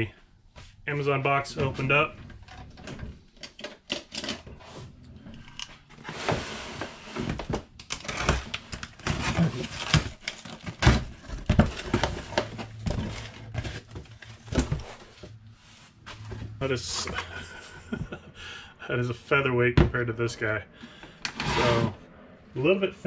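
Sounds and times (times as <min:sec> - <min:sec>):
cardboard rustling and scraping: 0:05.8 - 0:17.5.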